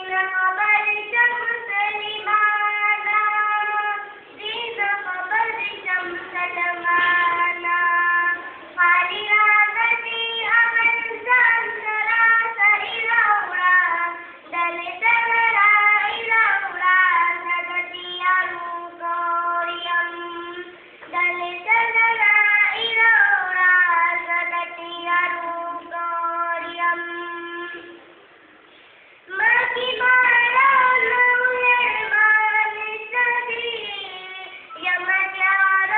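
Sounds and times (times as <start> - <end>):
girl singing solo: 29.3 - 35.9.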